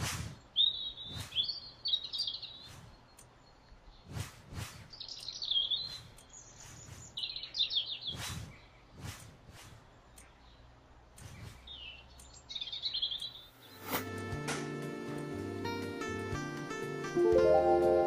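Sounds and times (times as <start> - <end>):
birds chirping: 0.0 - 13.9.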